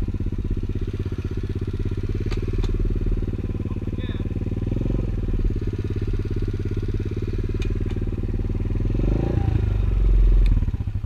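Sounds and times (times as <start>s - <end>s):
motorbike engine idling: 0.0s - 11.0s.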